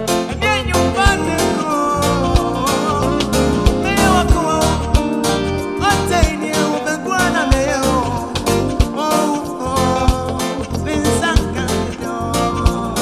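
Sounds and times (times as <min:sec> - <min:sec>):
gliding melodic line: 0:00.0 - 0:13.0
live band playing: 0:00.0 - 0:13.0
steady kick drum beat: 0:00.8 - 0:06.5, 0:07.4 - 0:09.0, 0:10.0 - 0:10.4.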